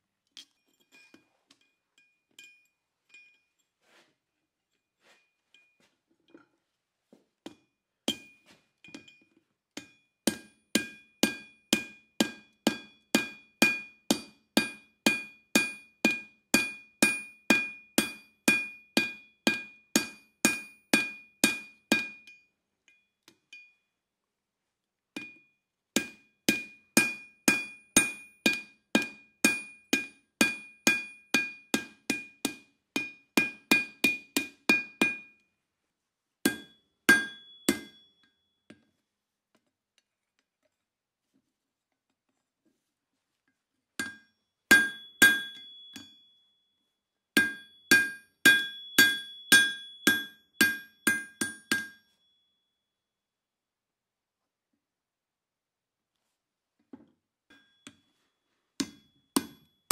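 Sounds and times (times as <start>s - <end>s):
hammer striking steel on anvil: 7.5s - 9.2s, 9.8s - 22.4s, 25.2s - 35.4s, 36.4s - 38.4s, 44.0s - 46.4s, 47.4s - 52.1s, 58.8s - 59.7s.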